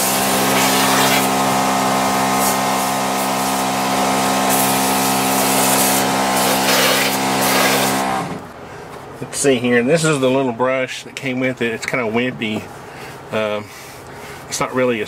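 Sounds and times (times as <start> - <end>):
spray hissing on metal floor: 0.0 - 8.1
pump humming: 0.0 - 8.5.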